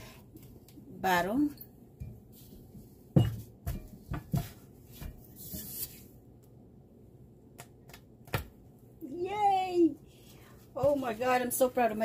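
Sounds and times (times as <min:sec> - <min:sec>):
spatula knocking and scraping pot: 0:01.9 - 0:05.9.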